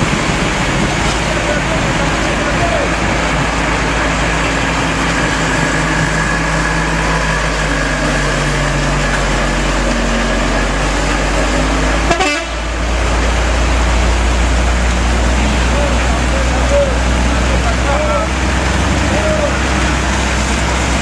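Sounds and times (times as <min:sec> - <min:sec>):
heavy truck engines running: 0:00.0 - 0:21.0
wet road noise: 0:00.0 - 0:21.0
vehicle horn: 0:12.0 - 0:12.6.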